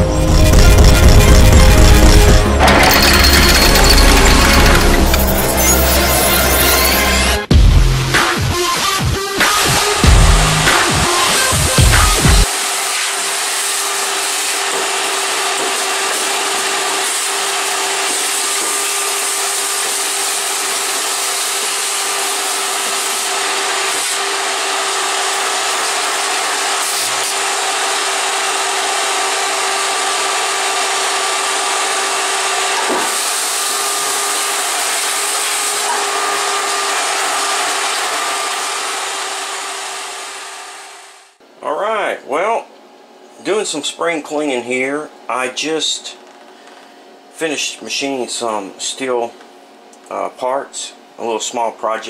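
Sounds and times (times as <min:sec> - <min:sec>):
shop vacuum running: 0:08.2 - 0:41.5.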